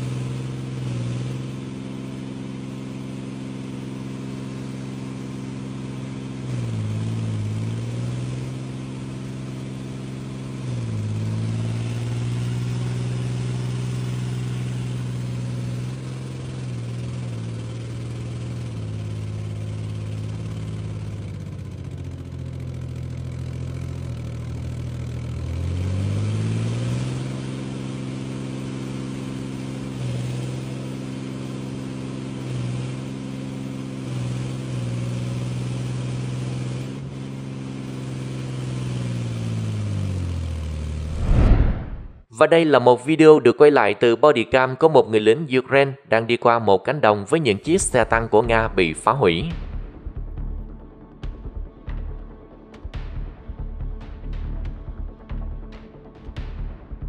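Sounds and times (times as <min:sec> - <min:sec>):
diesel engine running under load: 0:00.0 - 0:42.0.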